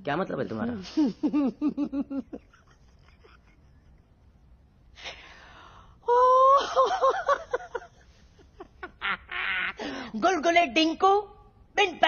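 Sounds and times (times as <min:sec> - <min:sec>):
man laughing: 0:01.1 - 0:04.1.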